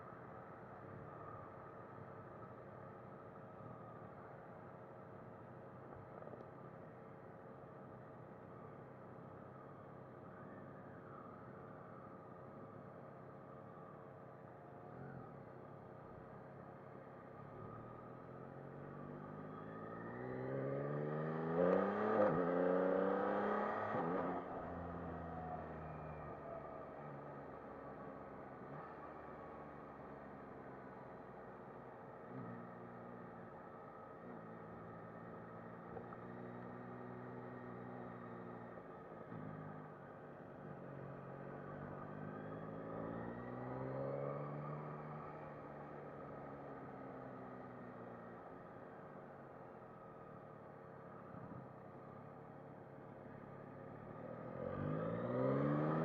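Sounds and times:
motorcycle engine accelerating: 54.2s - 56.0s.

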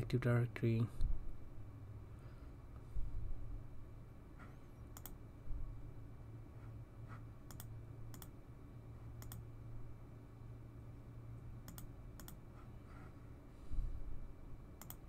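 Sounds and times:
steady low hum: 0.0s - 15.0s
computer mouse clicks: 4.4s - 5.2s, 7.5s - 8.4s, 9.2s - 9.4s, 11.6s - 12.4s, 14.8s - 15.0s.

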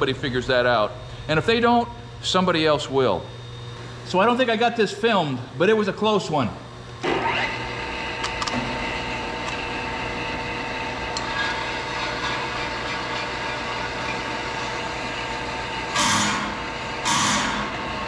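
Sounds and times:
drill press motor running: 6.6s - 18.0s
drill bit cutting steel: 7.0s - 18.0s.

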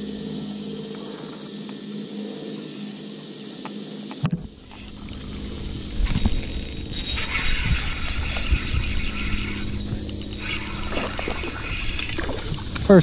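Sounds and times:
steady hiss: 0.0s - 13.0s
wind rumbling on microphone: 4.2s - 13.0s
spinning reel being cranked: 4.7s - 13.0s.

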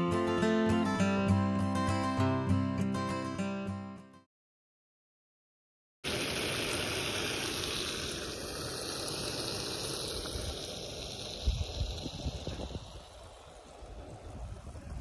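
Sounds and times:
wind rushing: 9.5s - 15.0s
wind buffeting microphone: 10.0s - 15.0s.

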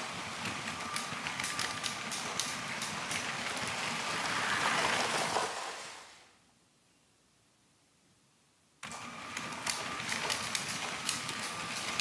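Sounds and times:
sharp clicks of train on track: 0.0s - 6.1s, 8.8s - 12.0s
toy train motor whir: 9.5s - 12.0s.

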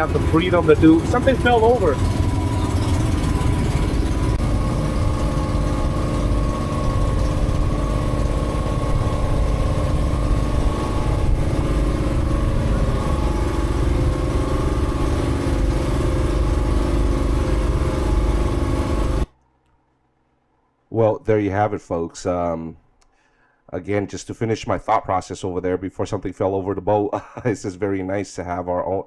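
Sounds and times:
boat engine droning: 0.0s - 19.3s.

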